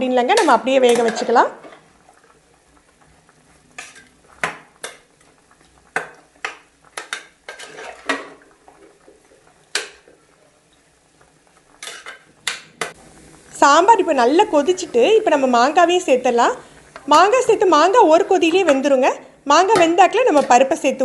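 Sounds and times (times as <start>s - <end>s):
metal spoon scraping metal pan: 3.8s - 4.1s, 7.5s - 8.1s, 11.8s - 12.2s.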